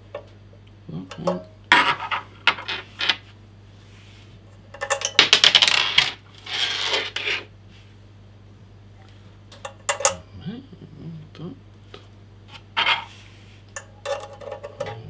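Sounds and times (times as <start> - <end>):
metal hardware clinking: 9.6 - 10.2, 13.8 - 15.0.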